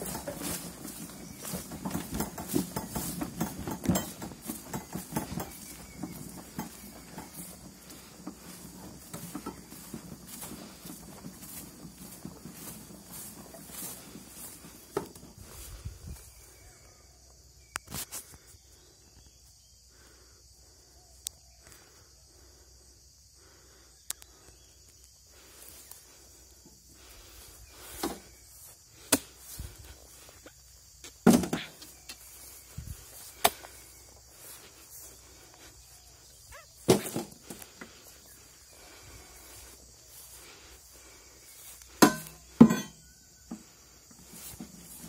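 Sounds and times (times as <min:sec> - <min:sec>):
insect chirring: 0:00.0 - 0:45.0
sharp knocks and thuds: 0:31.0 - 0:31.8, 0:36.8 - 0:37.6, 0:41.9 - 0:43.0.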